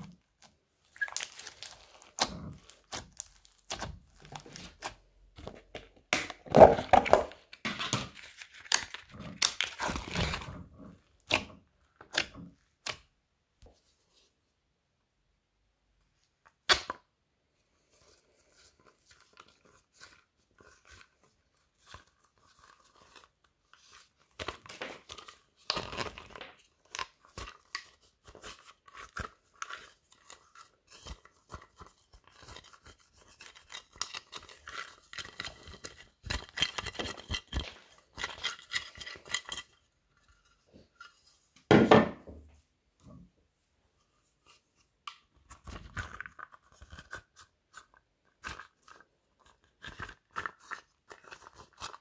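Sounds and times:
dried slime crust crunching: 0.0s - 5.4s.

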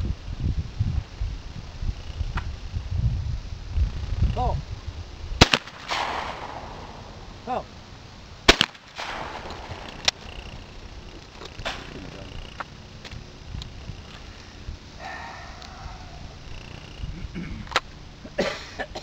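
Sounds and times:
shotgun shots: 5.4s - 7.1s, 8.5s - 9.9s, 11.6s - 12.0s.

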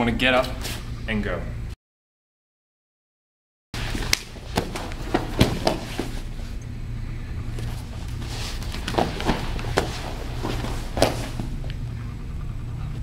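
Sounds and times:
steady low hum: 0.0s - 1.8s, 3.8s - 13.0s
bodies thudding on mats: 3.8s - 6.5s, 7.6s - 11.8s
sharp knocks: 4.5s - 6.1s.

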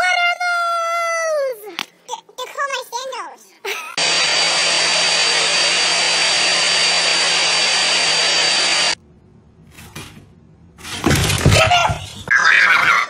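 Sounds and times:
handheld vacuum cleaner running: 4.0s - 9.0s.

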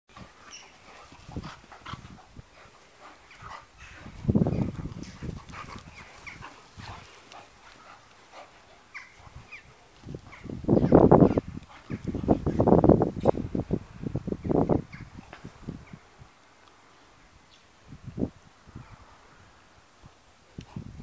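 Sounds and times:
dogs growling while tussling: 0.2s - 10.4s.

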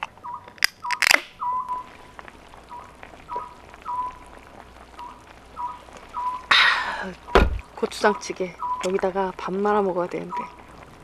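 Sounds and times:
can seal cracking and hissing: 0.0s - 1.4s
falling whistle-like call: 0.2s - 1.9s, 2.7s - 4.2s, 5.0s - 7.4s, 8.6s - 8.9s.

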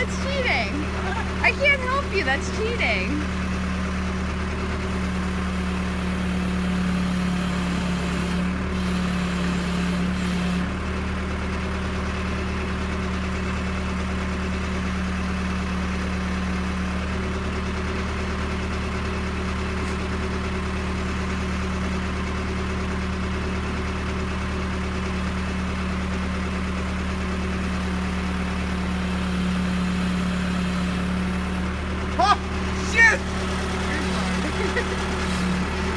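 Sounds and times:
backhoe engine idling: 0.0s - 35.9s.

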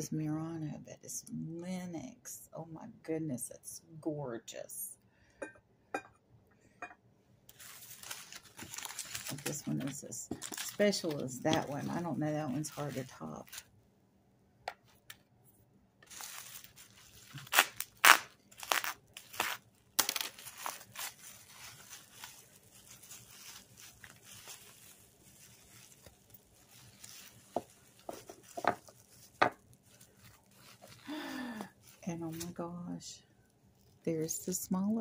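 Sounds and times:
sharp bubble wrap crackles: 7.5s - 13.7s, 16.0s - 32.7s, 33.7s - 34.3s
bubble wrap crinkling: 7.5s - 13.8s, 16.0s - 35.0s.

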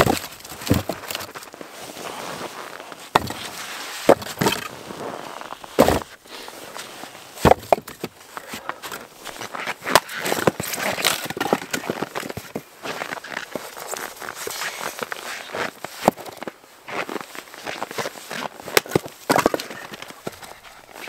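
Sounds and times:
firewood logs knocking together: 0.0s - 1.5s, 3.1s - 4.7s, 5.7s - 6.1s, 7.4s - 12.6s, 16.0s - 16.4s, 18.3s - 20.7s.

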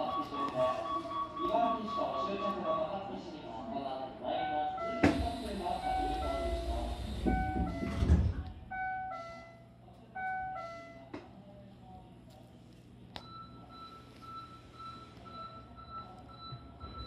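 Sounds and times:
faint pulsing high tone: 4.5s - 8.0s
sliding doors closing with thud: 5.0s - 8.7s.

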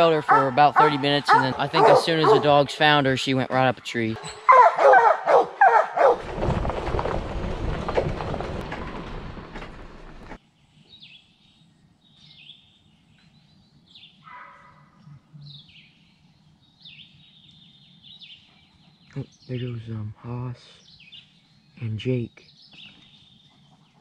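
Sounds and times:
songbird calling: 0.0s - 5.0s, 10.6s - 24.0s
truck driving on gravel: 6.0s - 10.4s.

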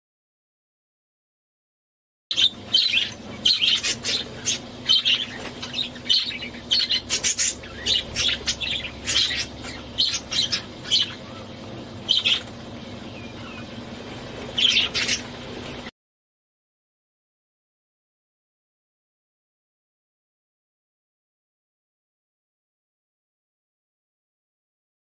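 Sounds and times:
budgerigar chirping: 2.3s - 11.5s, 12.1s - 12.5s, 14.6s - 15.3s
faint steady hum: 2.3s - 15.9s.

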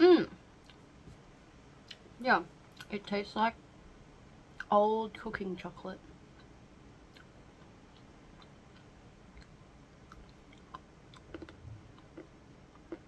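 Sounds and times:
chewing chocolate: 7.1s - 13.0s.

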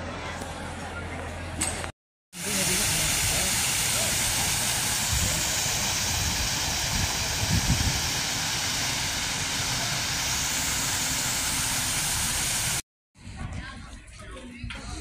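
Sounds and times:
steady hissing noise: 2.4s - 12.8s.

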